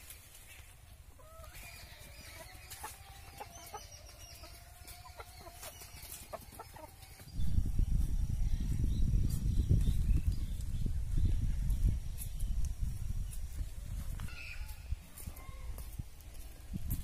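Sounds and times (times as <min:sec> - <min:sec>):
chickens clucking: 0:00.0 - 0:08.1
wind rumble on microphone: 0:06.6 - 0:17.0.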